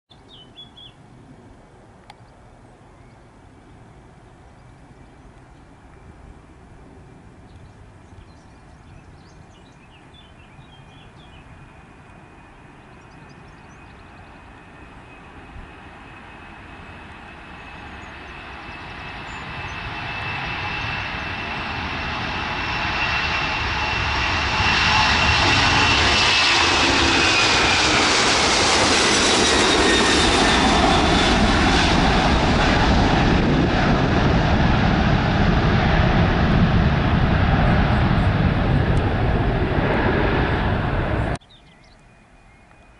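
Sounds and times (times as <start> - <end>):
jet airliner taking off: 9.0 - 41.4.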